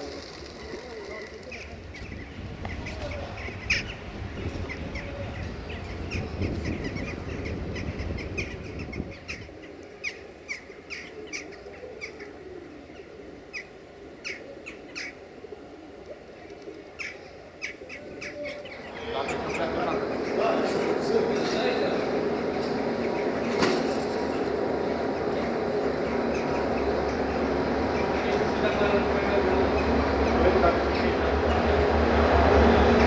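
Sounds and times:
pigeon wings flapping: 0.0s - 2.0s
birds chirping: 0.0s - 33.0s.

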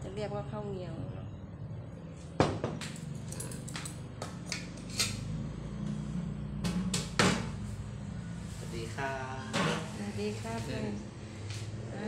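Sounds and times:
ceramic bowl knocking on a table: 2.4s - 2.8s.

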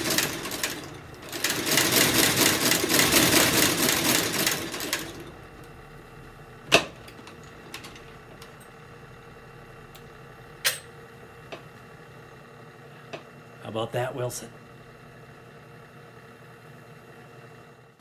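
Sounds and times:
stitching machine clattering: 0.0s - 5.7s, 6.7s - 8.8s.

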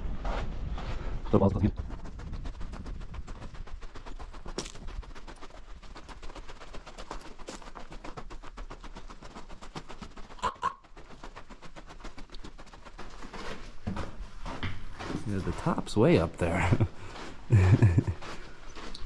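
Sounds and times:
footsteps crunching on gravel: 3.8s - 19.0s.

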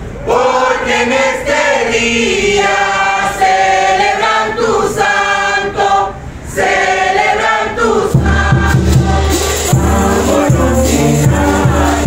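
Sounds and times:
group chanting: 0.2s - 12.0s
large drum beat: 8.1s - 12.0s.

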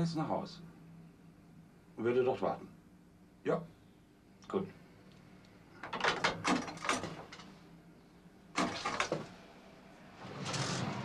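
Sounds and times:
telephone handset hung up: 5.8s - 7.3s.

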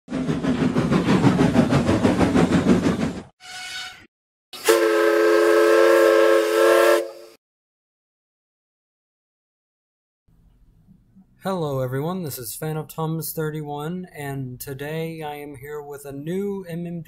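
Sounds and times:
steam locomotive chuffing: 0.1s - 3.4s
steam whistle blast: 3.4s - 7.4s.

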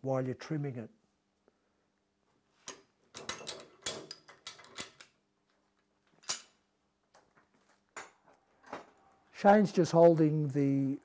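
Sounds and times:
metal clinks and knocks: 3.1s - 5.0s.

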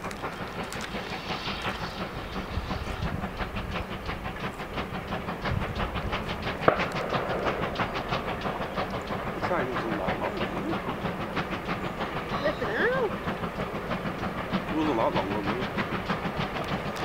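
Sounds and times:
steam train running: 0.0s - 17.0s
sharp knock: 6.6s - 8.3s.

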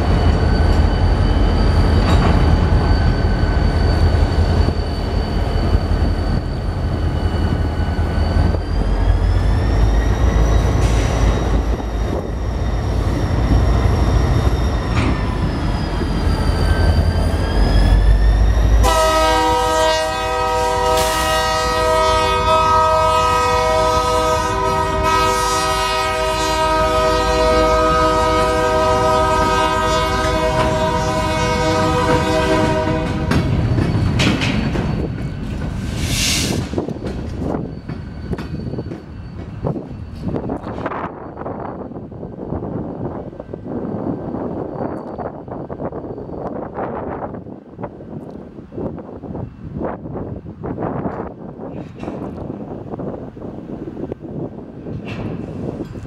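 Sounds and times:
diesel locomotives rumbling: 0.0s - 56.0s
locomotive air horn blast: 18.8s - 33.4s.

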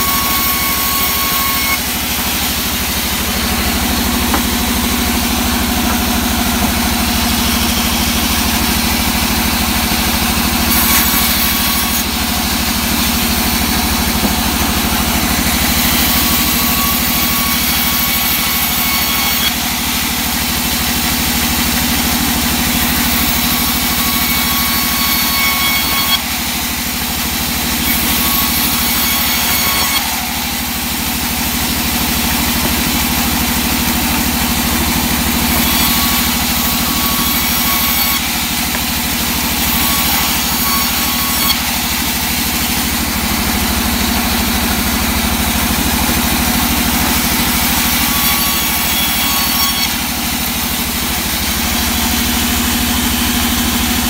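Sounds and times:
band saw humming: 0.0s - 54.0s.

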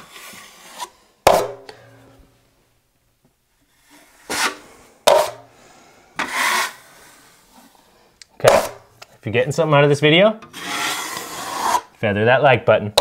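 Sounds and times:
taping knife scraping joint compound: 0.0s - 1.8s, 3.7s - 5.4s, 6.2s - 7.7s, 10.4s - 12.0s
blade wiping mud along wall: 6.2s - 7.1s, 10.5s - 11.9s.

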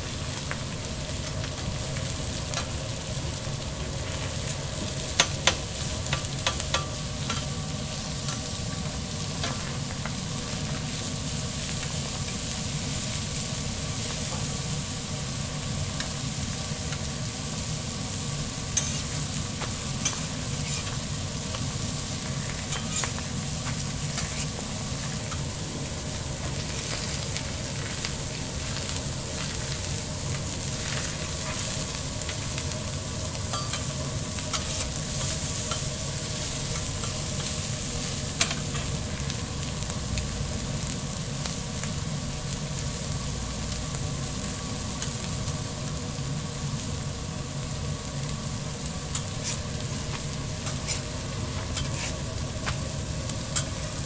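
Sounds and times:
food sizzling on griddle: 0.0s - 54.0s
metal spatula scraping: 20.1s - 21.0s, 24.1s - 24.6s, 50.6s - 51.1s, 51.7s - 52.2s.

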